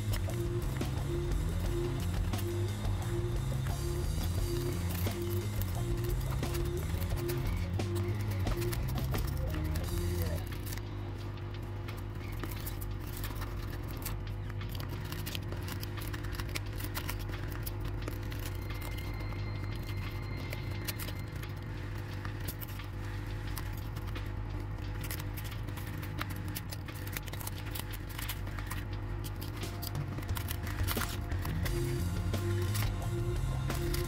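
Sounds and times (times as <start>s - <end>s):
hot air gun humming: 0.0s - 10.5s.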